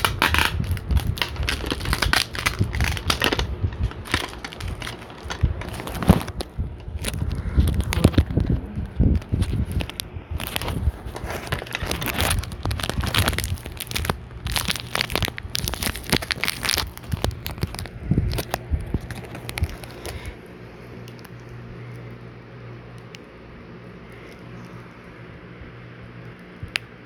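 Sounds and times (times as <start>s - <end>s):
rustling and crackling: 0.0s - 20.4s
steady low hum: 0.0s - 27.0s.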